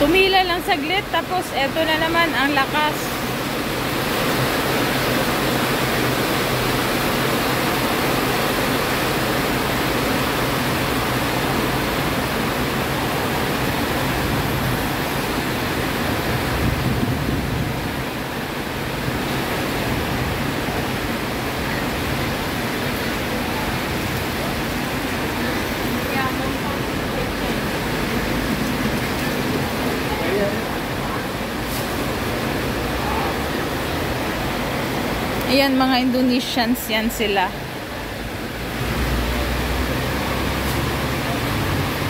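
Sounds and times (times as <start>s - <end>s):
heavy rain pouring: 0.0s - 42.0s.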